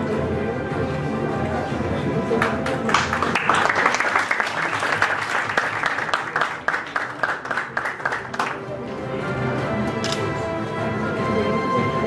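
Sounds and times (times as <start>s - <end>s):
audience applauding: 2.4s - 8.6s.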